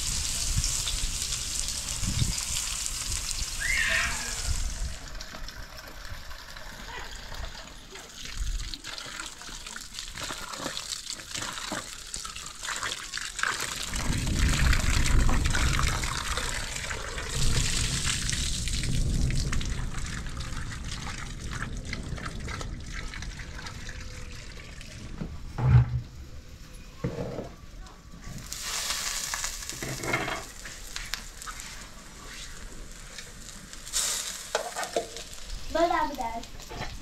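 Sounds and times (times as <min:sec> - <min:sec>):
water splashing on ground: 0:00.0 - 0:24.7, 0:28.4 - 0:37.0
tap water running into steel bowl: 0:04.8 - 0:14.0.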